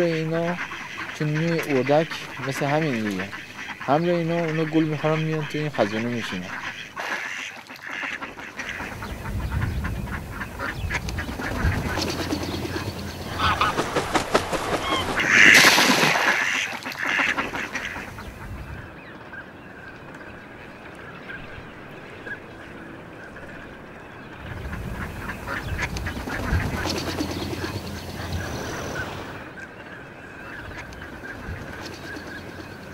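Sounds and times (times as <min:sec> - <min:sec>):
ducks quacking: 0:00.0 - 0:19.0, 0:24.4 - 0:29.6.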